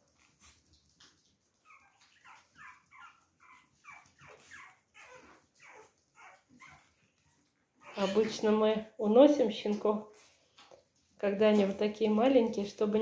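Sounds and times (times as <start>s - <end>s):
puppy whimpering: 1.6s - 7.0s, 7.8s - 8.6s.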